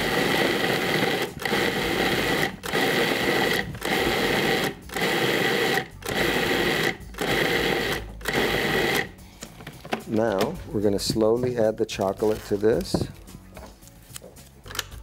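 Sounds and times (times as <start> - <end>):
food processor motor whining: 0.0 - 9.1.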